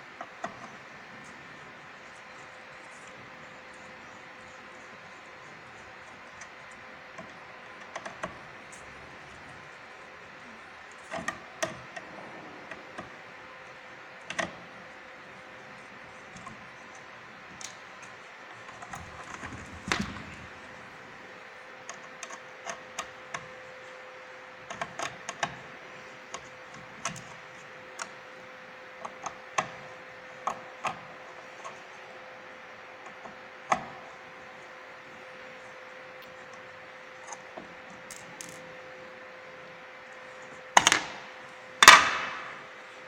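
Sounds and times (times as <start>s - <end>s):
faint steady hum: 0.0s - 43.0s
clicks and taps of tools: 37.3s - 38.6s, 40.8s - 42.6s.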